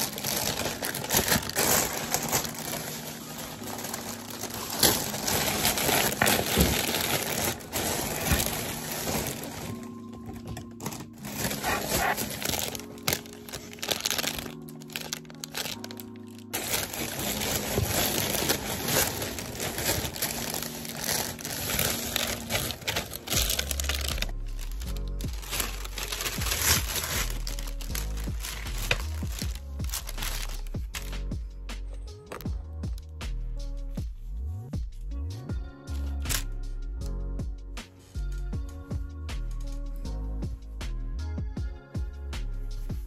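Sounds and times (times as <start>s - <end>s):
plastic bags crinkling: 0.0s - 31.1s
background music: 0.0s - 43.0s.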